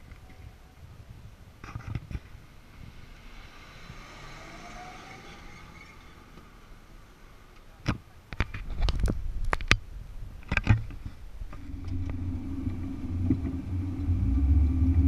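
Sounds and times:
car engine and road noise: 0.0s - 15.0s
sharp clicks and knocks: 10.4s - 13.6s.

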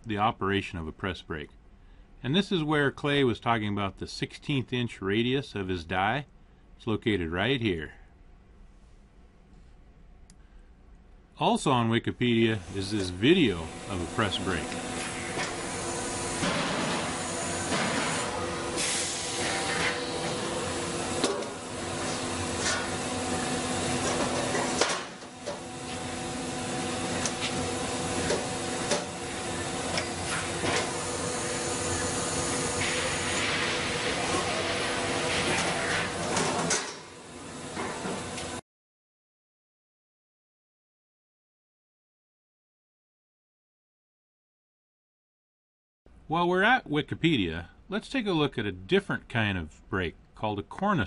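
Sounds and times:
machine hum with hiss: 12.4s - 38.6s.

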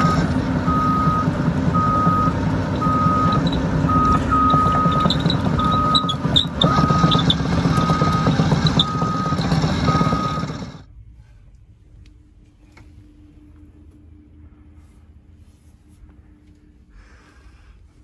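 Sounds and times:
excavator travel alarm beeping: 0.0s - 10.8s
tracks rattling and squeaking: 0.0s - 10.8s
diesel engine: 0.0s - 18.0s
faint low hum: 10.9s - 18.0s.

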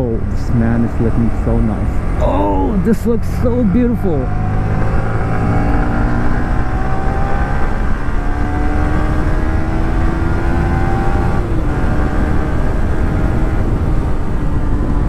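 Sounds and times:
motorcycle engine at speed: 0.7s - 15.0s
wind rush on microphone: 4.2s - 15.0s.

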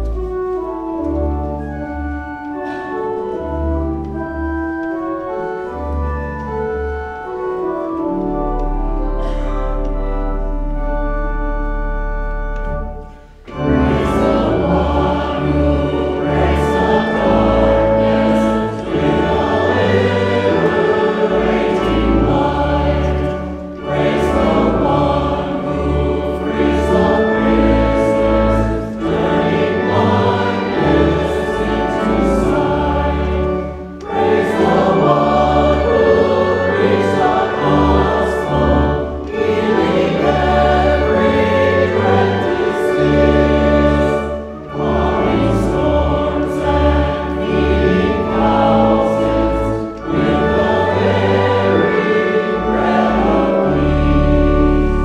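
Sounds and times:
choir singing a hymn: 0.0s - 55.0s.

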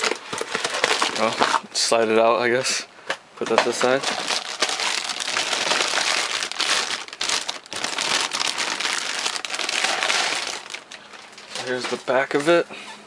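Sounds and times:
plastic wrap crinkling: 0.0s - 1.6s, 3.7s - 12.5s.

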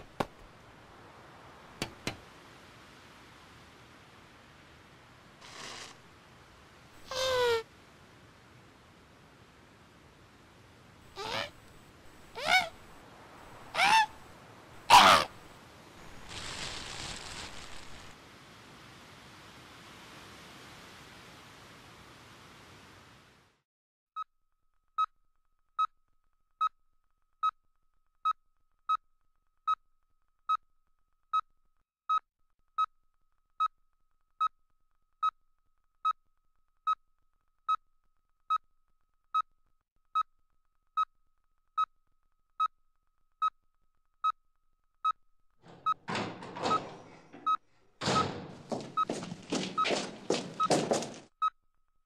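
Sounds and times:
rough rasping noise: 5.4s - 6.0s
heart monitor beeping: 45.0s - 51.6s.

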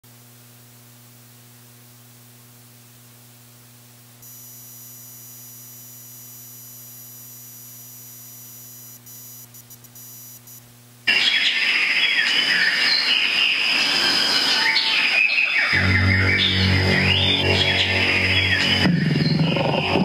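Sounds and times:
electrical hum and hiss: 0.1s - 11.7s, 15.7s - 20.0s
high-pitched digital whine: 4.2s - 11.4s, 15.6s - 20.0s.

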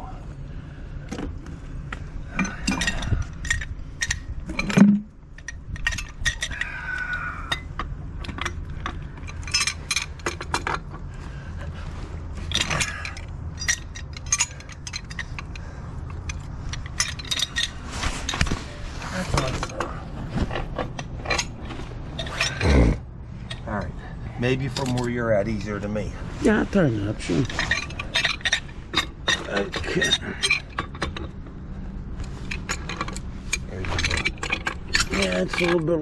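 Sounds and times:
metal hand tools clinking: 12.5s - 17.8s, 27.3s - 31.2s.

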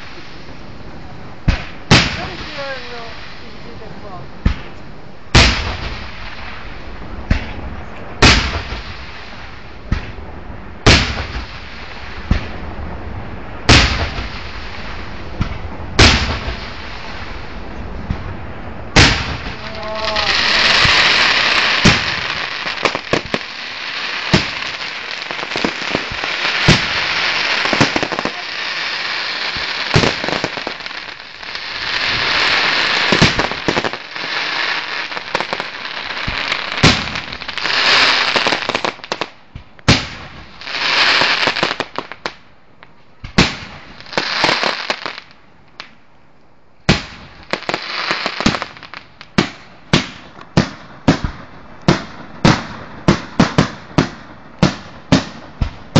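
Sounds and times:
fireworks hissing: 0.0s - 42.4s, 43.2s - 45.4s, 46.9s - 50.4s
firework shells bursting: 18.9s - 42.4s.

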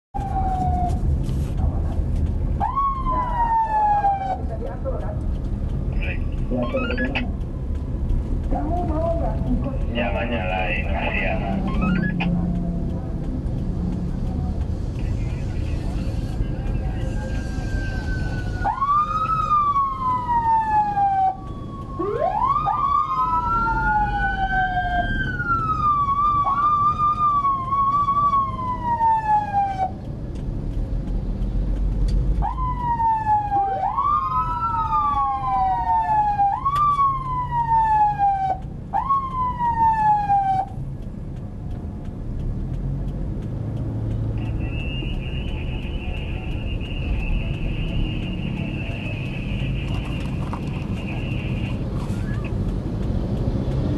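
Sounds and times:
engine and traffic rumble: 0.1s - 53.9s
electronic siren sweeps: 6.6s - 7.3s, 11.5s - 12.4s.

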